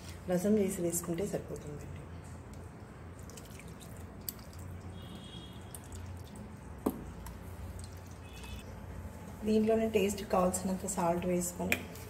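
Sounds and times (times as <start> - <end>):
juice pouring between bowls: 2.4 - 8.6.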